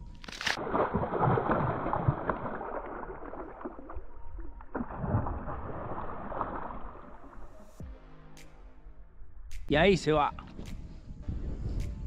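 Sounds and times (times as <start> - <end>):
water splashing and sloshing: 0.0 - 7.8.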